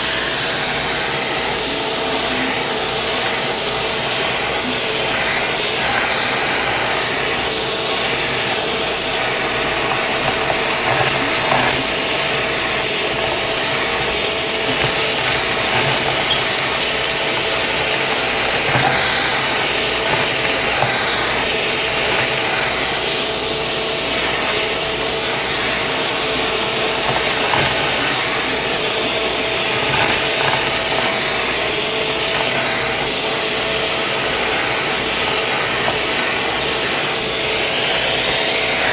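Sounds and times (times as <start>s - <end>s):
vacuum cleaner suction and whine: 0.0s - 38.9s
debris clicking up nozzle: 8.9s - 23.2s.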